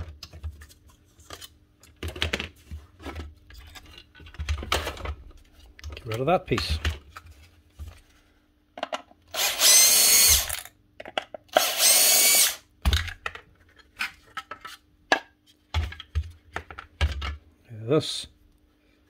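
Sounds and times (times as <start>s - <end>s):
plastic parts clicking and knocking: 0.0s - 7.2s, 8.7s - 9.3s, 10.4s - 11.7s, 12.8s - 17.4s
cordless drill running: 9.3s - 10.7s, 11.5s - 12.7s.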